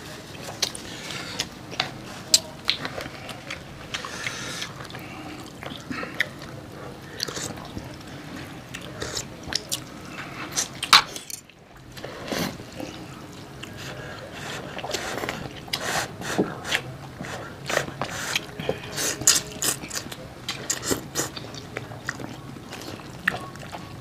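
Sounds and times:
food being bitten and chewed: 8.7 - 24.0.

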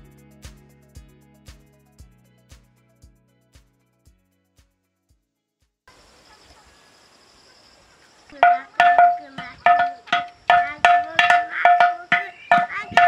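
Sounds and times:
hand drumming on metal pot: 8.4 - 13.0.

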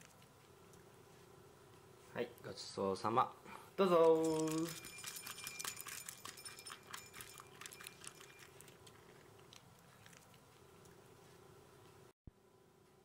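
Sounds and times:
puppy crunching dry kibble: 4.0 - 11.0.

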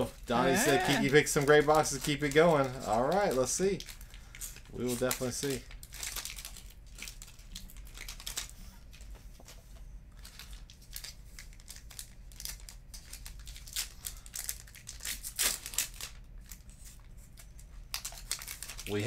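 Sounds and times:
plastic wrap crinkling and tearing: 0.1 - 9.0, 10.2 - 19.0.

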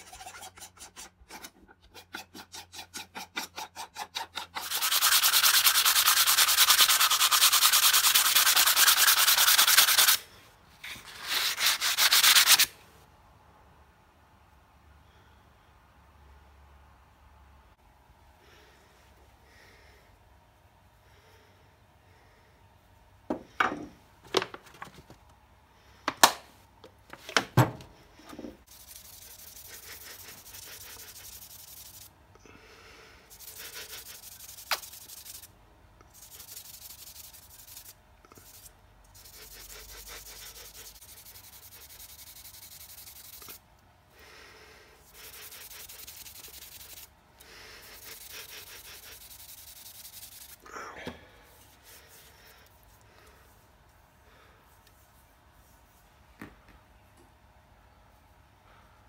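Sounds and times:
hand rubbing wooden handle: 0.0 - 10.2, 47.8 - 50.6.

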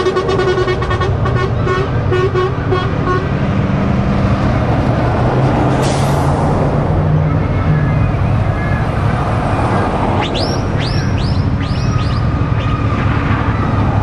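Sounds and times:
truck air horn toots: 0.0 - 3.4
diesel lorry passing: 0.0 - 14.0.

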